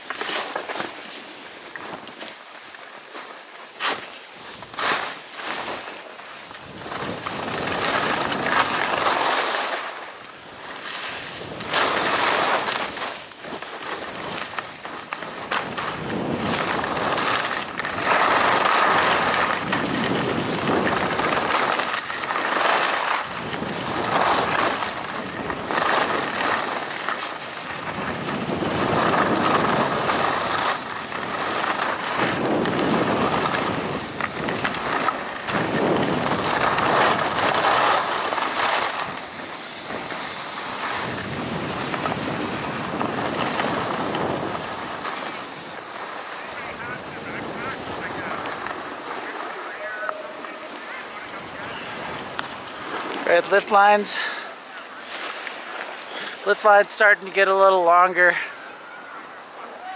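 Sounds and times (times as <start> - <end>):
skis scraping over snow: 0.0 - 59.9
wind on microphone: 15.3 - 22.5, 23.2 - 45.8.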